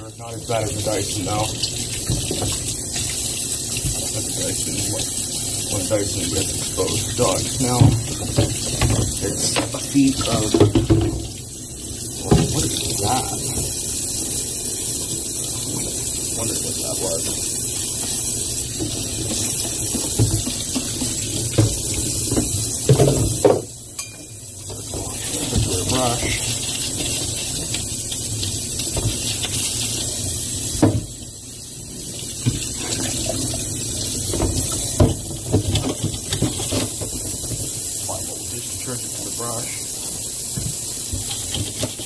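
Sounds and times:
tap water running into sink: 0.0 - 42.0
parts knocking against sink: 19.2 - 24.1.

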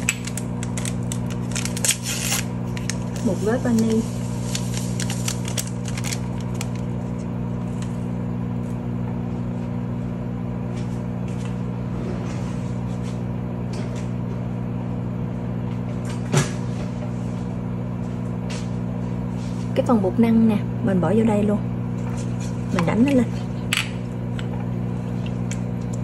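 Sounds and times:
sugar packet rustling: 0.0 - 8.0
microwave oven humming: 0.0 - 26.0.

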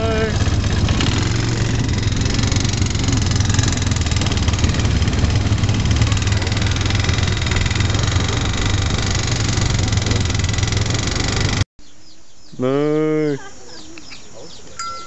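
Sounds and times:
quad bike engine running: 0.0 - 11.7
birds chirping faintly: 11.8 - 15.0.

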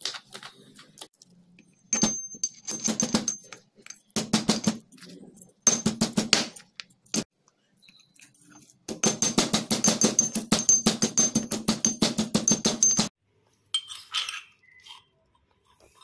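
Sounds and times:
pestle pounding in metal mortar: 4.2 - 4.9, 5.6 - 7.3, 8.9 - 13.2.

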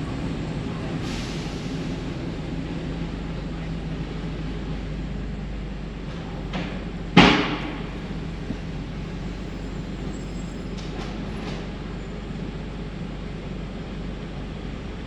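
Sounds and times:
car road and engine noise: 0.0 - 15.0
loud thump: 7.2 - 7.9.

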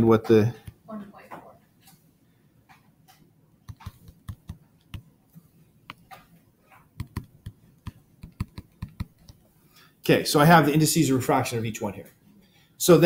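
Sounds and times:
pen tapping on screen: 2.7 - 5.1, 5.8 - 9.4.

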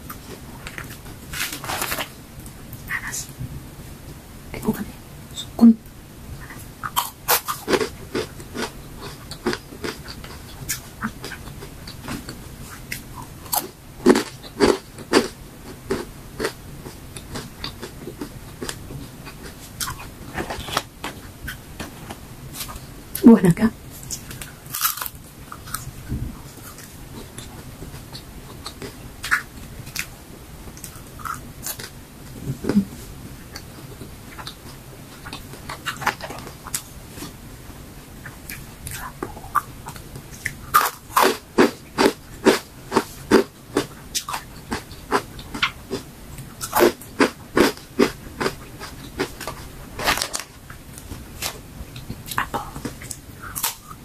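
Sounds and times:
crunching and chewing chips: 6.8 - 21.6, 24.1 - 25.9, 30.7 - 32.0, 38.2 - 54.0.

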